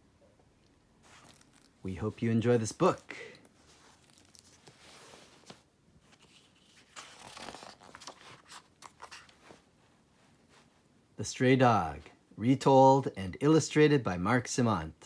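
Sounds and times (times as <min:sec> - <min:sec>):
book pages turning: 0:01.0 - 0:09.7.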